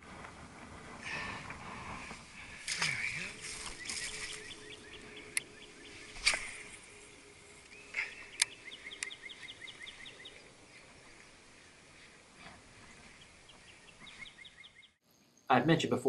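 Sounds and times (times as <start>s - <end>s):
bird trilling: 2.9s - 10.8s
sharp clicks: 7.6s - 9.2s.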